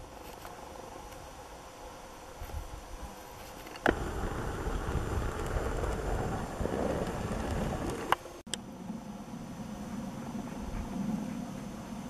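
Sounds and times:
wind buffeting microphone: 3.9 - 8.2.

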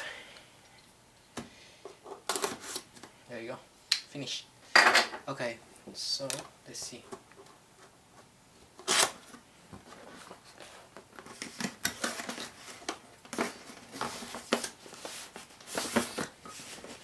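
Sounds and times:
cardboard scraping and rustling: 8.8 - 17.0.

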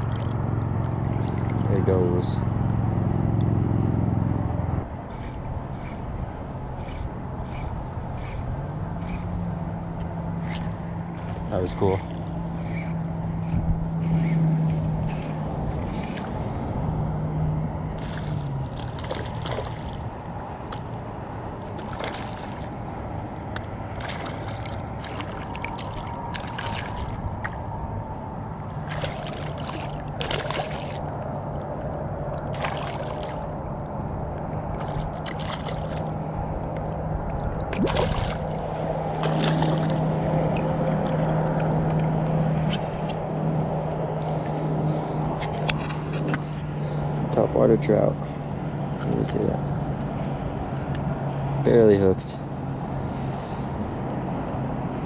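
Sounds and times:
fish splashing in water: 0.0 - 1.7, 10.4 - 13.0, 17.9 - 43.0
steady low hum: 0.0 - 55.0.

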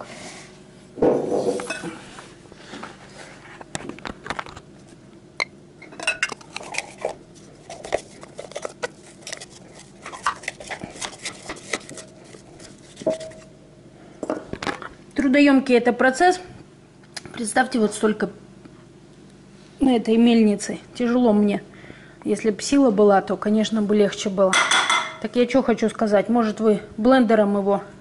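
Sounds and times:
garlic mill crunching garlic: 5.9 - 13.1.

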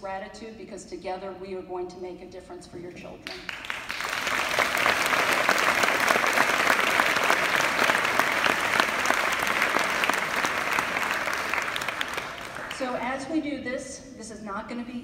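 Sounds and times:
audience applauding: 3.3 - 13.0.

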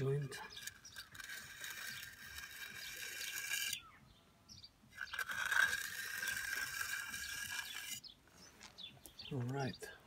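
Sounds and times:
tool scraping wet concrete: 0.0 - 3.9, 4.9 - 8.4.

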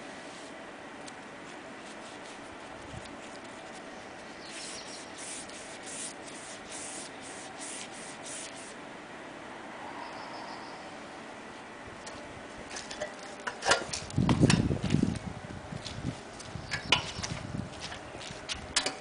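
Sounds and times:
paintbrush scrubbing brick wall: 1.4 - 8.8.

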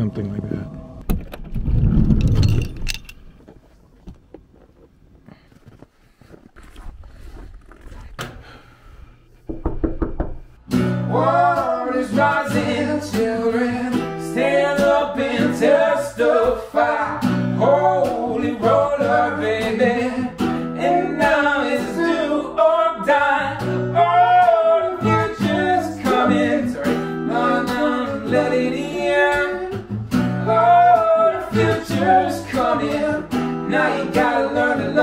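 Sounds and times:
strummed acoustic guitar: 10.6 - 35.0
man singing: 11.1 - 35.0.

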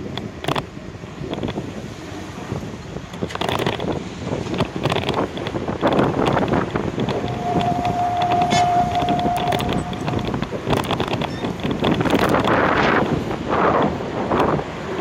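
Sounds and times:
street traffic: 0.0 - 15.0
wind buffeting microphone: 0.0 - 15.0
steady tone: 6.9 - 11.5.

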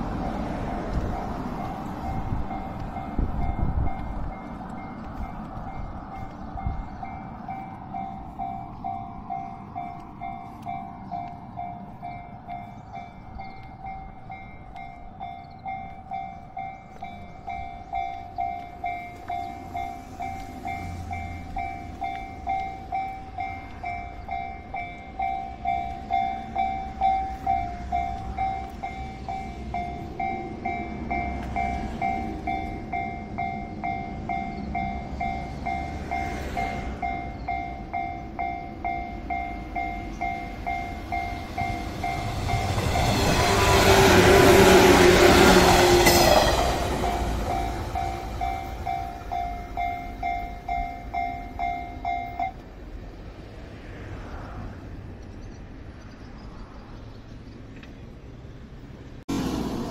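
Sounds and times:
train passing close by: 0.0 - 59.9
level crossing bell dinging: 46.0 - 52.6.

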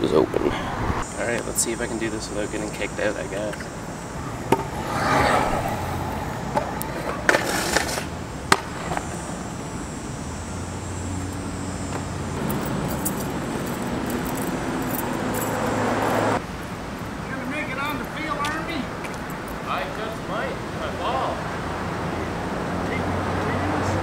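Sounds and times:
road traffic hum: 0.0 - 24.0
scooter clattering on concrete: 6.5 - 9.1.

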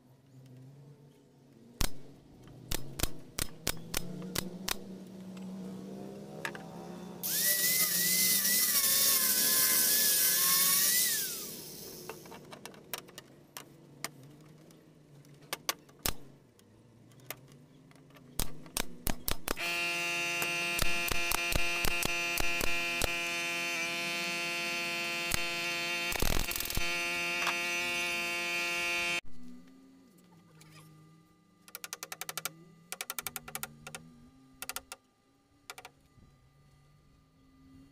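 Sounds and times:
steady machine hum: 1.7 - 17.0, 18.5 - 37.9
angle grinder sanding wood: 7.2 - 12.4, 19.6 - 29.2.

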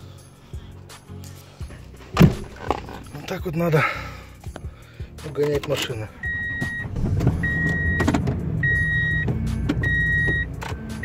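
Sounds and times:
pickup truck engine running: 1.6 - 11.0
warning chime beeping: 6.2 - 10.5.

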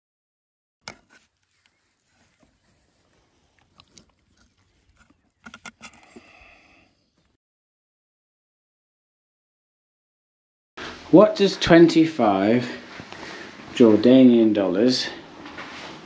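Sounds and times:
person chewing and crunching: 0.9 - 6.7.

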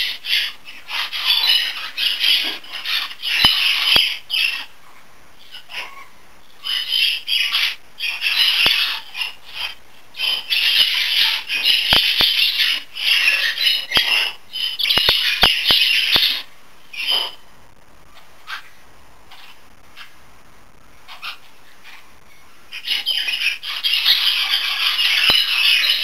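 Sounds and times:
budgerigar chattering: 5.5 - 17.4, 22.7 - 26.0.

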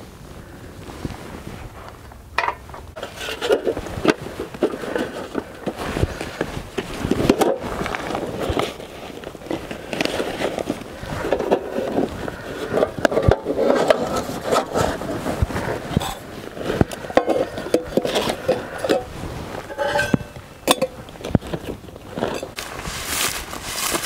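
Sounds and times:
rustling of packed gear: 0.0 - 24.0.

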